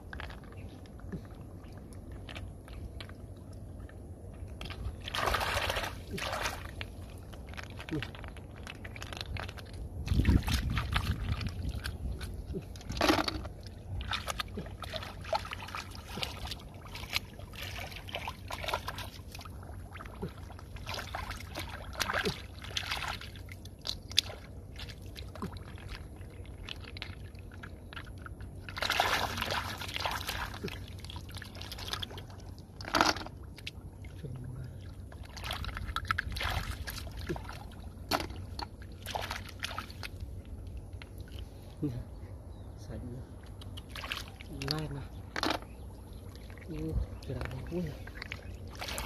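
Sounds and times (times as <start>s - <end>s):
water dripping and trickling: 0.0s - 41.6s
muddy water sloshing and splashing: 0.0s - 49.0s.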